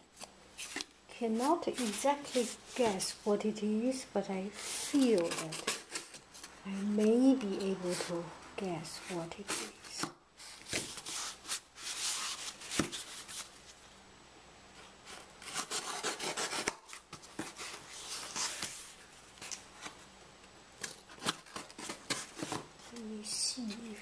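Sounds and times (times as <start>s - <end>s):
scraping on cardboard and tape: 0.6s - 3.1s, 4.5s - 6.6s, 9.0s - 13.5s, 14.8s - 20.0s.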